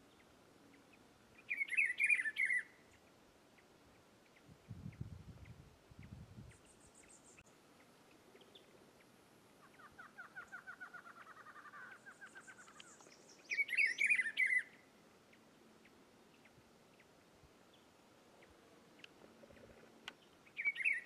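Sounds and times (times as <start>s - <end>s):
bird trilling: 1.5s - 2.7s, 9.6s - 14.8s, 20.6s - 21.0s.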